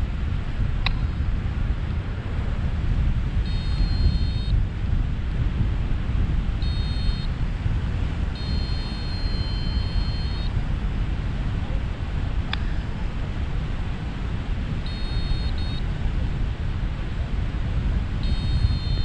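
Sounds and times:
wind rushing over microphone: 0.0s - 19.0s
high electronic tone: 3.5s - 4.5s, 6.6s - 7.3s, 8.4s - 10.5s, 14.9s - 15.8s, 18.2s - 19.0s.

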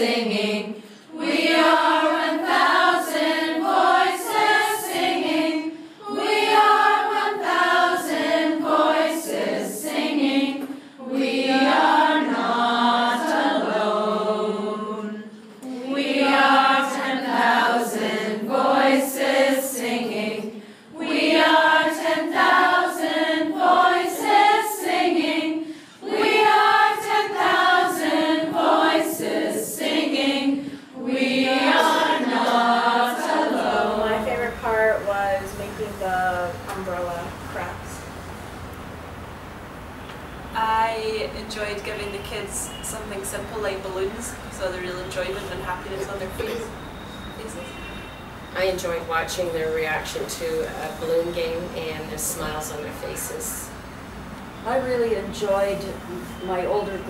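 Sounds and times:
group singing in chorus: 0.0s - 34.9s.

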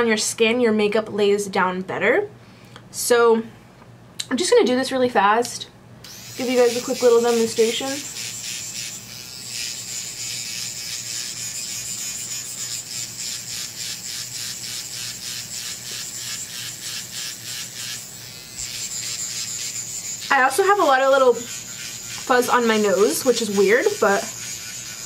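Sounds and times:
high-pitched motor buzz: 6.1s - 25.0s.

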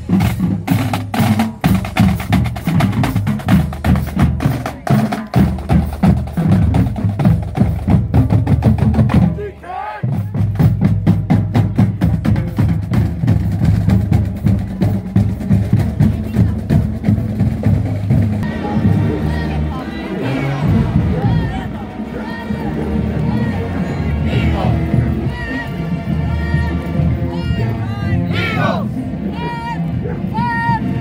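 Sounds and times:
music with fast heavy drumming: 0.0s - 19.7s.

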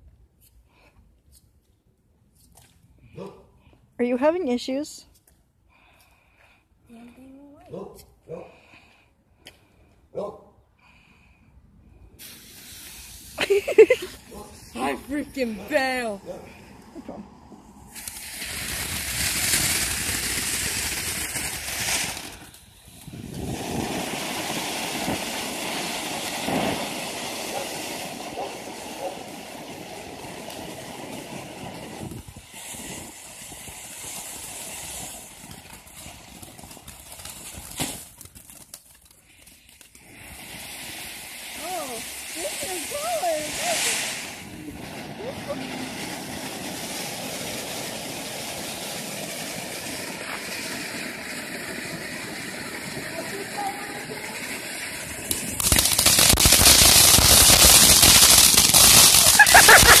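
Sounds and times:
faint firework crackles: 2.4s - 10.0s, 10.8s - 60.0s
firework fountain hissing: 12.0s - 60.0s
firework bang: 37.4s - 38.1s, 42.6s - 60.0s.

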